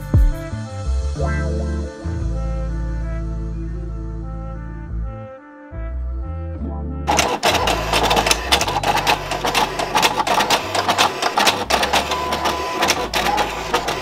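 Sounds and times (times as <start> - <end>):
printer clattering: 7.1 - 14.0.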